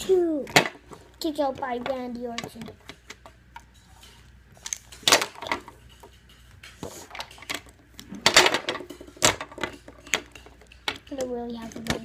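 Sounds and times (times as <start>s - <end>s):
plastic figures clacking on table: 4.7s - 12.0s.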